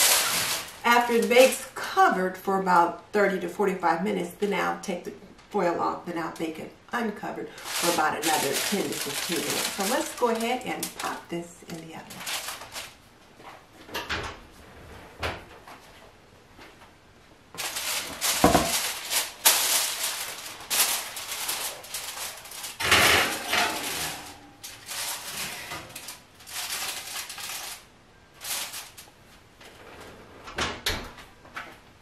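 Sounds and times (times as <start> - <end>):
oven rack and baking dish scraping: 17.6 - 27.8.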